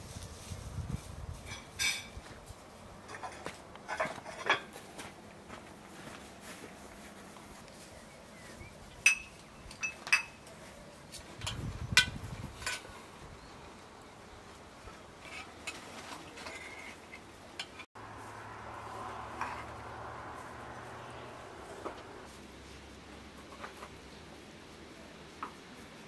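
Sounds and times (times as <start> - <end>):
ceramic dishes and spoon clinking: 1.5 - 2.2, 9.0 - 10.4.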